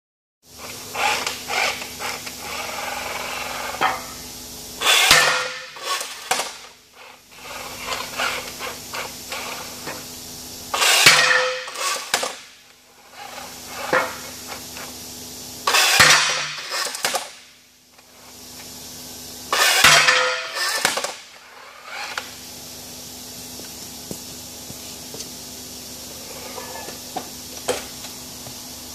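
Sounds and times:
pneumatic hiss: 0:00.5 - 0:15.0, 0:15.6 - 0:17.4, 0:18.0 - 0:28.9
steady low hum: 0:00.5 - 0:28.9
robot axe striking: 0:04.8 - 0:06.6, 0:10.8 - 0:12.4, 0:15.7 - 0:17.4, 0:19.6 - 0:21.2.

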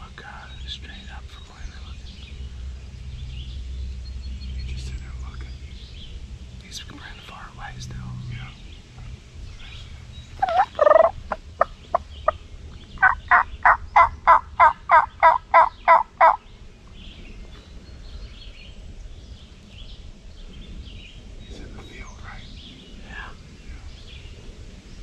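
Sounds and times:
turkey yelps: 0:10.4 - 0:11.4, 0:13.0 - 0:16.4
turkey calling: 0:10.4 - 0:12.4, 0:13.0 - 0:16.4
turkey clucks: 0:10.4 - 0:12.4, 0:13.0 - 0:16.4.

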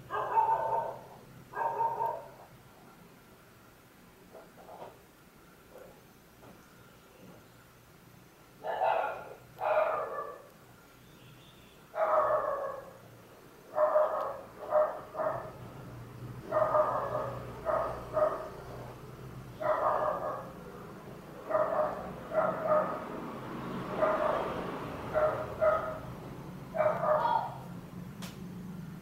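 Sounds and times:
dog barking: 0:00.0 - 0:02.4, 0:08.6 - 0:10.5, 0:11.9 - 0:13.0, 0:13.7 - 0:15.6, 0:16.4 - 0:18.8, 0:19.6 - 0:20.6, 0:21.4 - 0:23.1, 0:23.9 - 0:26.1, 0:26.7 - 0:27.7.

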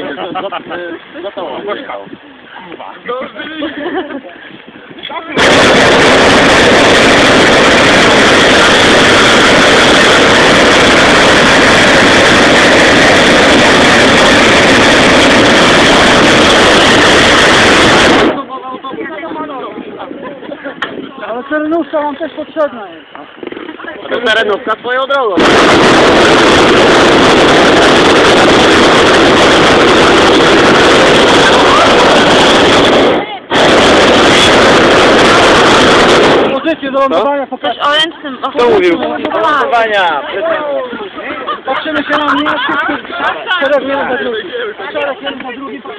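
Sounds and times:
propane burner roaring: 0:05.4 - 0:18.5, 0:25.3 - 0:36.7.

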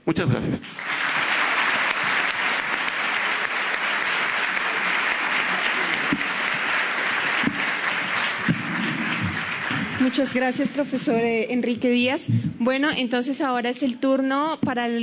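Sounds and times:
audience applauding: 0:00.6 - 0:12.1.

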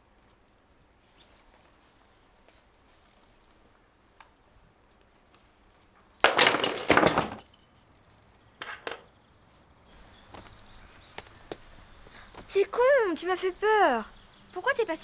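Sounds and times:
small objects clattering onto desk: 0:06.2 - 0:09.1.

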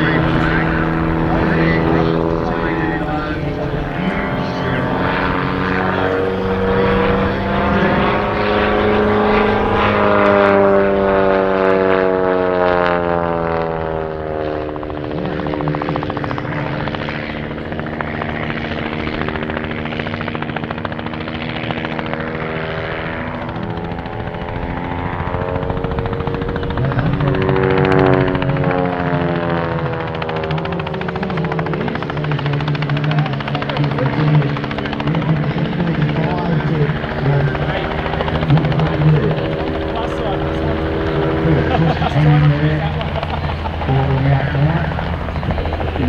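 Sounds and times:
propeller plane engine drone: 0:00.0 - 0:46.0.

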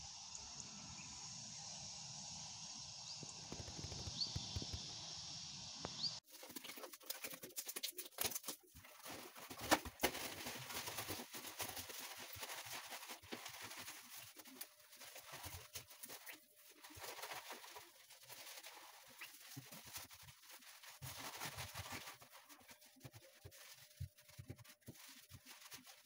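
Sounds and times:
cloth wiping glass: 0:18.8 - 0:26.0.

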